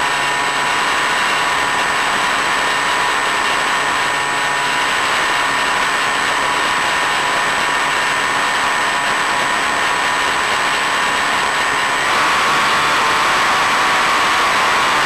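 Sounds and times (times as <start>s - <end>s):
electric motor whining: 11.8s - 15.0s.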